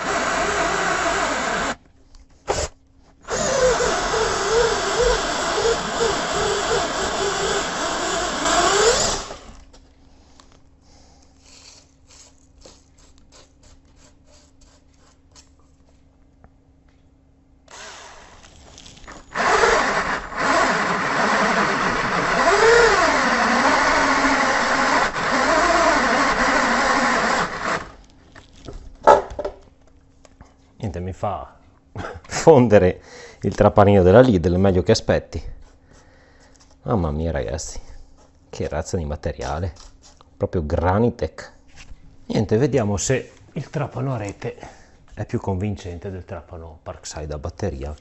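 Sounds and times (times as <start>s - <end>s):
cordless drill straining: 0.0s - 1.8s, 2.5s - 9.6s, 17.7s - 28.0s.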